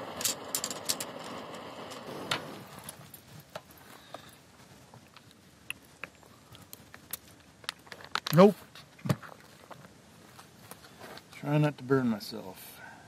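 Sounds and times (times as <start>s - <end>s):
steady rushing hiss: 0.0s - 9.0s.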